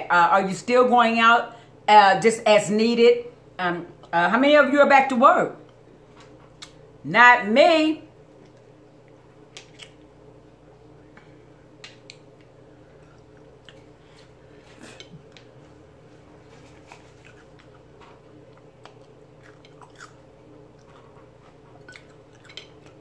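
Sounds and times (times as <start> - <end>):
faint steady hum: 0.0 - 23.0
chewing and mouth smacking: 5.7 - 6.8, 8.3 - 10.1, 11.8 - 15.5, 16.5 - 23.0.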